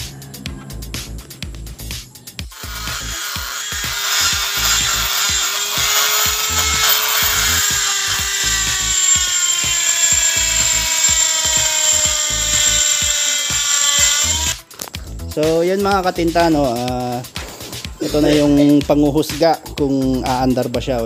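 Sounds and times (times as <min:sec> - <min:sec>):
background music with beat: 0:00.0 - 0:04.7, 0:08.2 - 0:21.0
rotary tool grinding metal: 0:02.4 - 0:14.6.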